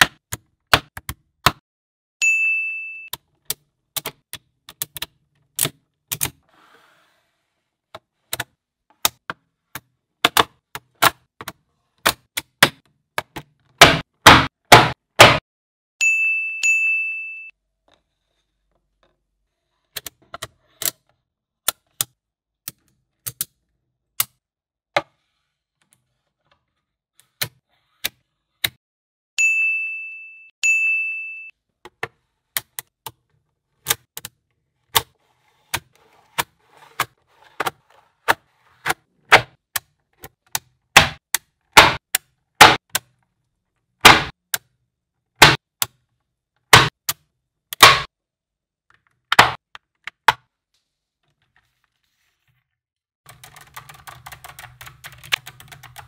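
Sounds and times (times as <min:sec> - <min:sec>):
bell-like ding: 0:02.2 - 0:03.1, 0:16.0 - 0:17.5, 0:29.4 - 0:31.5.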